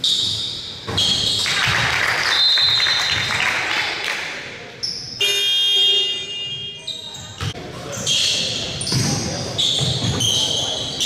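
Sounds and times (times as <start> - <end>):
sneaker squeaks: 0.0 - 1.6, 4.7 - 11.0
crowd cheering and clapping: 1.4 - 4.3.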